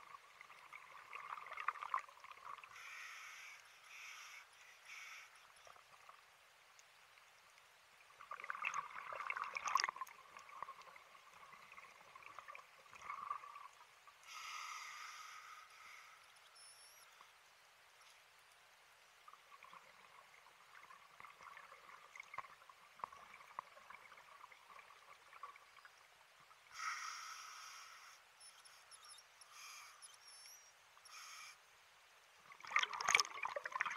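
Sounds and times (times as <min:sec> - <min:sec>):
exhaled bubbles gurgling: 0:00.0 - 0:02.7, 0:08.2 - 0:13.8, 0:19.4 - 0:25.9, 0:32.5 - 0:33.9
regulator inhalation hiss: 0:02.7 - 0:05.5, 0:14.2 - 0:16.3, 0:26.7 - 0:28.8, 0:31.1 - 0:31.6.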